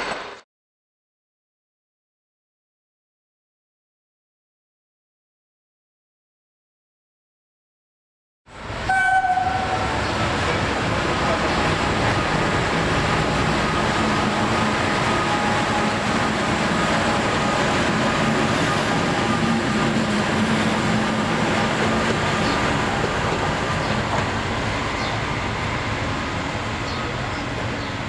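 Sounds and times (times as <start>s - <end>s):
diesel locomotive engine drone: 8.5s - 28.0s.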